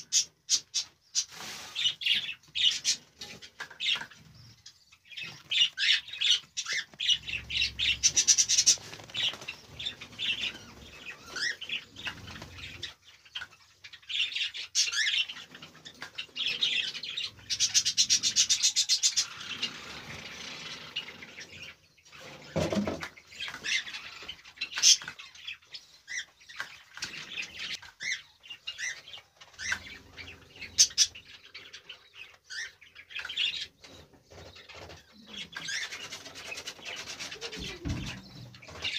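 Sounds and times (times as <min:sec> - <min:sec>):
cockatiels chirping: 0:00.0 - 0:21.8, 0:23.3 - 0:38.9
wings flapping against cage: 0:08.0 - 0:12.8.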